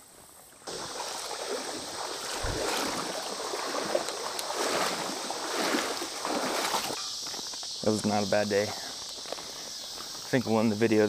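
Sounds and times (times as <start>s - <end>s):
water sloshing around legs: 0.7s - 7.4s.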